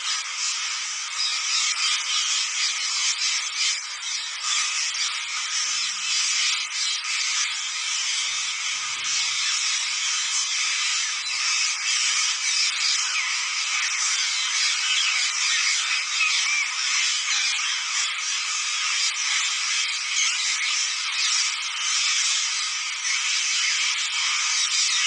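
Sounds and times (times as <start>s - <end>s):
flock of parakeets chattering: 0.0s - 25.0s.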